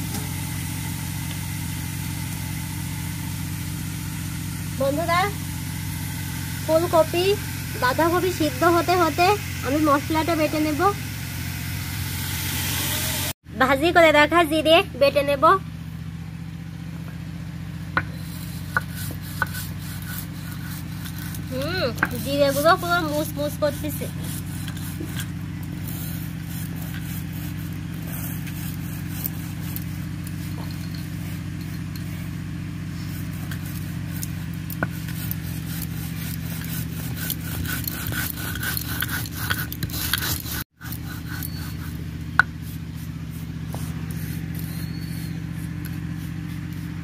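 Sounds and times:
stone grinding seeds: 18.0 - 32.2, 33.0 - 47.0.

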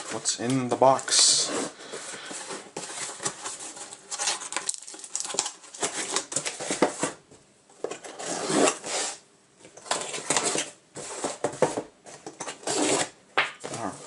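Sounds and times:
box cutter scraping cardboard: 8.0 - 9.2, 12.4 - 13.2.

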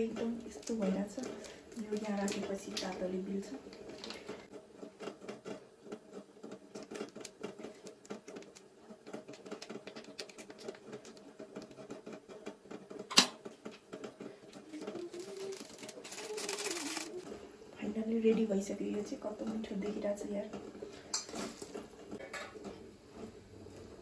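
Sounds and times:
plastic sachets crinkling: 0.4 - 3.0, 6.7 - 11.8, 14.5 - 17.3.

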